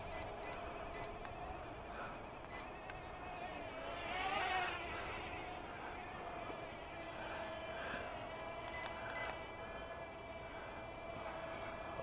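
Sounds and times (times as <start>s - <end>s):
toy drone motors buzzing: 0.0s - 12.0s
controller electronic beeps: 8.7s - 9.4s.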